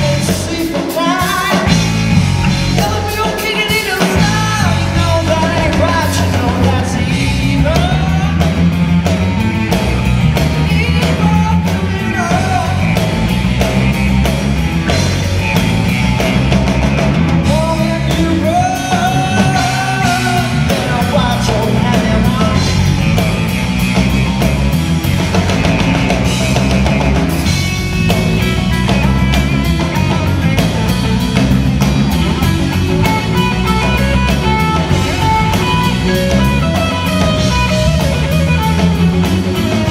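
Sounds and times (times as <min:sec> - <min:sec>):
person singing: 0:00.0 - 0:02.0, 0:02.7 - 0:08.8, 0:10.5 - 0:13.1, 0:17.4 - 0:22.9
live rock band playing: 0:00.0 - 0:39.9.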